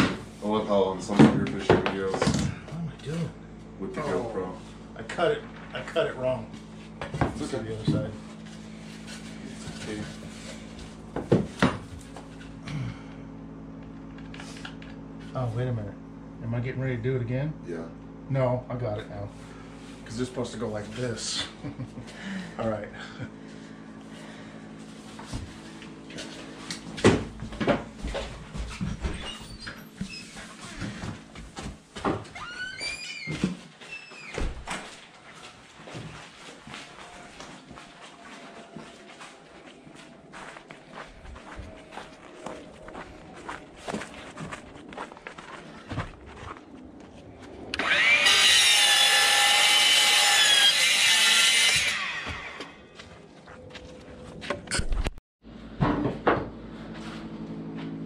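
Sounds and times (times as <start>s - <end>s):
miter saw whining: 47.7s - 53.0s
saw cutting flooring plank: 47.7s - 53.0s.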